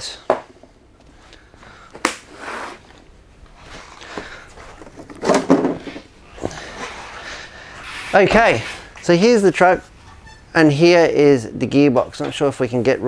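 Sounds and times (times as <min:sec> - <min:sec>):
rustling and shuffling: 0:00.5 - 0:10.2.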